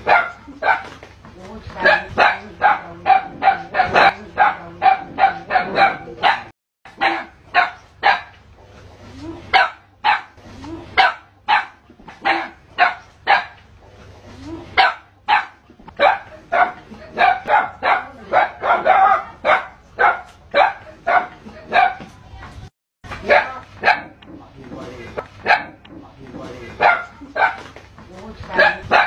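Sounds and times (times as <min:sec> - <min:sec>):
dog barking: 0:00.0 - 0:01.0, 0:01.8 - 0:08.4, 0:09.5 - 0:10.4, 0:11.0 - 0:13.6, 0:14.8 - 0:22.1, 0:23.2 - 0:24.2, 0:25.4 - 0:25.9, 0:26.8 - 0:27.8, 0:28.5 - 0:29.0.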